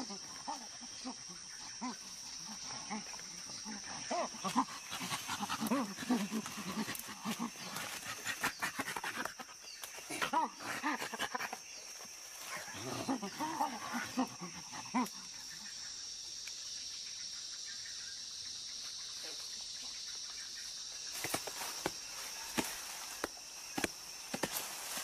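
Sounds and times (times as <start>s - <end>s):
chimpanzees calling: 0.0s - 16.0s
high insect drone: 0.0s - 25.0s.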